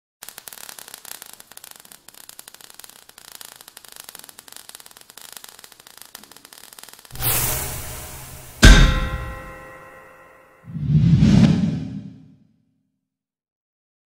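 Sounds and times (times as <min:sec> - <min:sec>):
hiss: 0:00.2 - 0:09.3
sparks crackling: 0:00.2 - 0:10.6.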